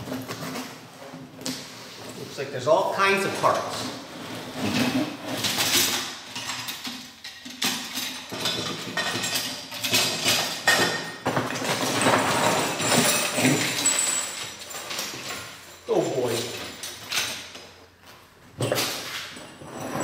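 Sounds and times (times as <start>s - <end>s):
metal rods clinking and rattling: 4.6s - 17.8s, 18.6s - 20.0s.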